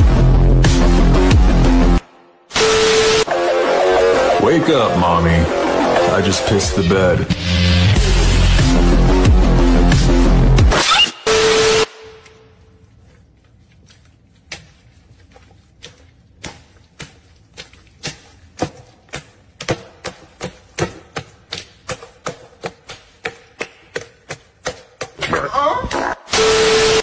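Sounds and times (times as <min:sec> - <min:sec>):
woman shrieking: 0:25.3 - 0:26.3.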